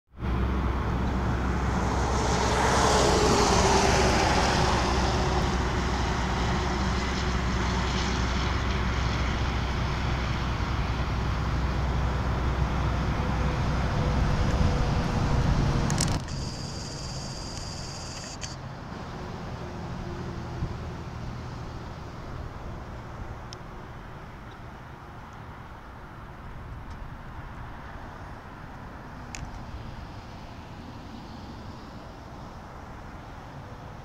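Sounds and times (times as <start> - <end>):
highway traffic rush: 0.1 - 34.0
vehicle passing by: 0.2 - 24.2.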